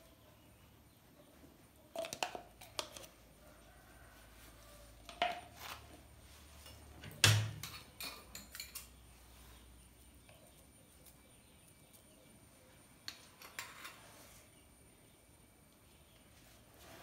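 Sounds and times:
metal spoon clinking on dishes: 7.6s - 9.0s.

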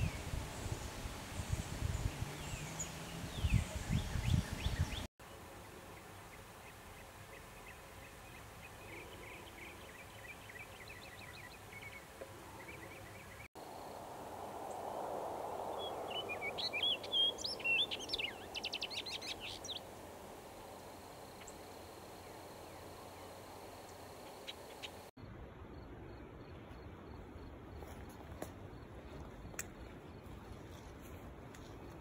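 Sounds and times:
soft rushing background: 13.6s - 25.1s
songbirds chirping and singing: 15.8s - 19.8s.

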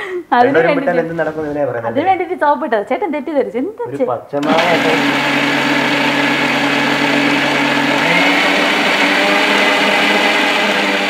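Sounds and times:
mixer grinder humming: 4.4s - 11.0s.

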